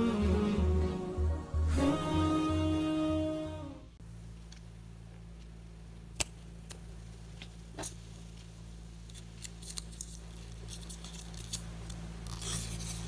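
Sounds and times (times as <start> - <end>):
paper crinkling and rustling: 9.1 - 13.0.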